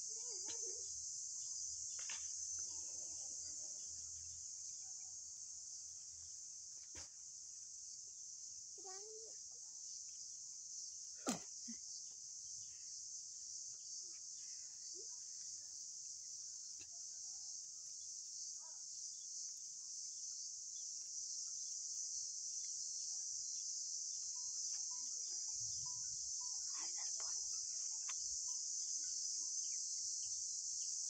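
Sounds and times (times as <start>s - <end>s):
insects chorus: 0.0s - 31.0s.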